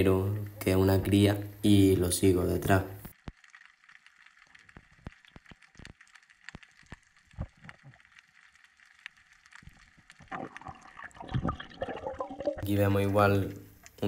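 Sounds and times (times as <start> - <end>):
underwater crackling clicks: 2.9 - 11.9, 13.6 - 14.0.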